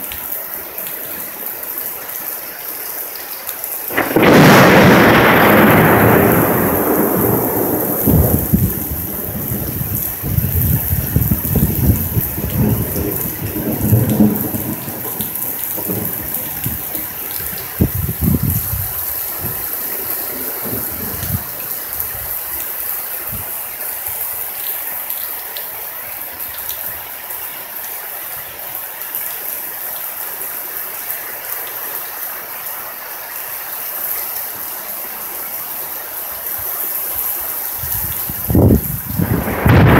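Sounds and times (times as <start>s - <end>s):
rain falling: 0.0s - 39.9s
loud thunder clap: 3.9s - 21.7s, 37.9s - 39.9s
thunder rumbling: 3.9s - 22.6s, 37.6s - 39.9s.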